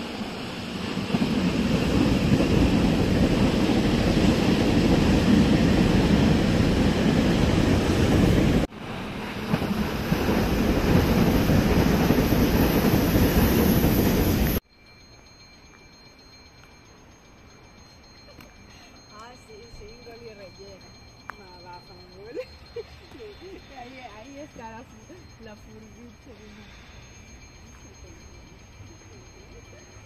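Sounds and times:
wind buffeting microphone: 0:00.3 - 0:14.6.

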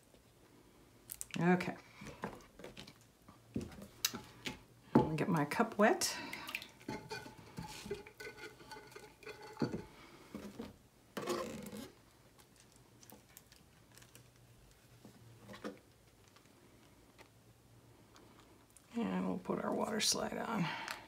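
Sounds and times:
water splashing and dripping: 0:06.1 - 0:07.2.

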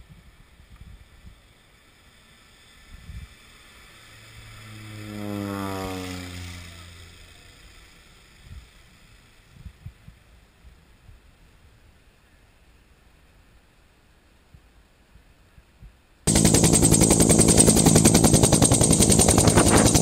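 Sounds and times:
propeller plane passing overhead: 0:01.7 - 0:09.5, 0:16.3 - 0:20.0
wind buffeting microphone: 0:16.3 - 0:20.0.

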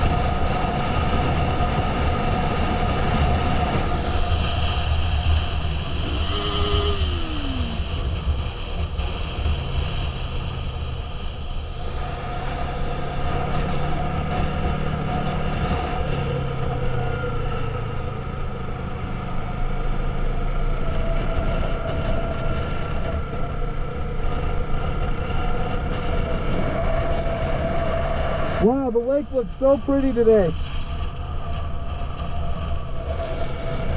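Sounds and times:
wind on microphone: 0:00.0 - 0:12.6
motorcycle engine droning: 0:00.0 - 0:33.9.

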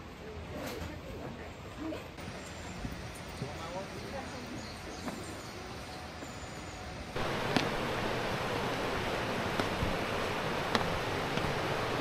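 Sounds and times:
rushing water: 0:07.2 - 0:12.0.

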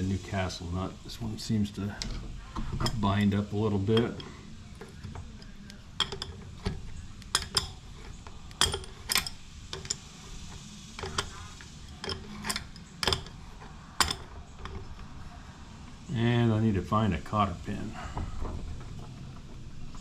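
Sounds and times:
wrench metallic clicks and clinks: 0:04.0 - 0:15.0.

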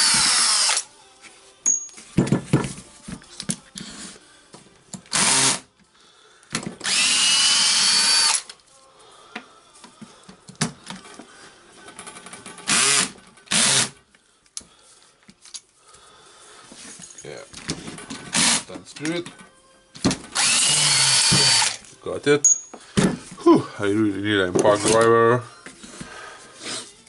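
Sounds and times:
cordless drill running: 0:00.0 - 0:00.8, 0:05.1 - 0:05.6, 0:06.8 - 0:08.4, 0:12.7 - 0:13.9, 0:18.3 - 0:18.6, 0:20.4 - 0:21.8.

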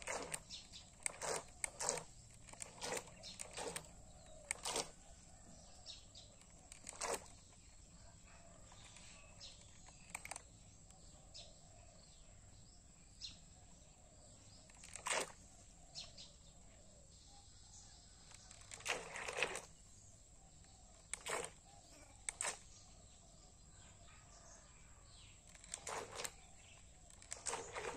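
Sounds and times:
sharp clicks: 0:00.0 - 0:05.0, 0:20.9 - 0:21.6, 0:22.2 - 0:22.7, 0:25.4 - 0:27.9
faint outdoor ambience: 0:00.0 - 0:27.9.

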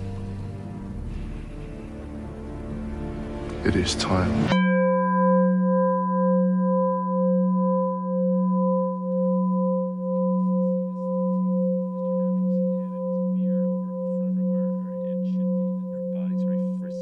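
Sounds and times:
singing bowl ringing: 0:04.5 - 0:17.0.

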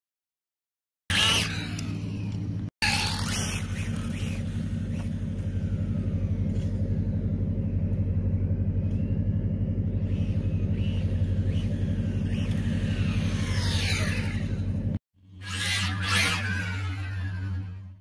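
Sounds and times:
toy car electric motor whining: 0:01.1 - 0:06.0, 0:10.1 - 0:14.8, 0:15.4 - 0:18.0
steady low hum: 0:01.1 - 0:18.0.

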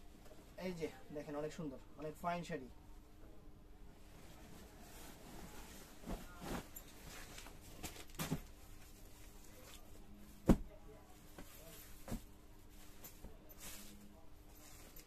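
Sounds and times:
stiff fabric rustling: 0:04.0 - 0:15.0.

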